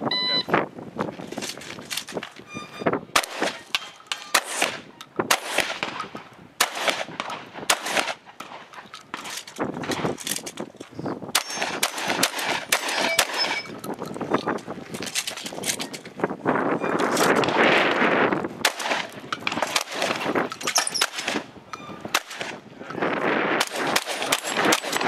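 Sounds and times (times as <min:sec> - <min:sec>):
gunshots: 0:03.1 - 0:10.2, 0:11.3 - 0:13.7, 0:18.6 - 0:21.5, 0:22.1 - 0:25.0
steel targets ringing: 0:12.8 - 0:13.8.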